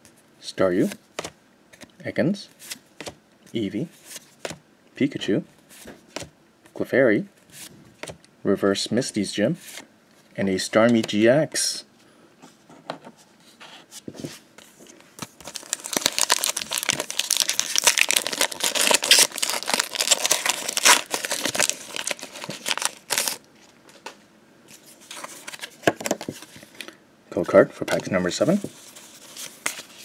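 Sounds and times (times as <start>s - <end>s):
foil wrapper tearing and crinkling: 15.4s - 23.4s.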